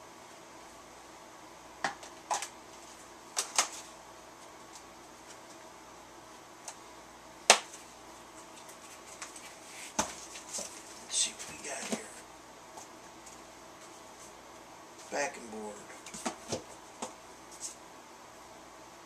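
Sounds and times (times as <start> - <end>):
cardboard snap: 7.5 - 7.8
cardboard rustling: 8.7 - 12.2.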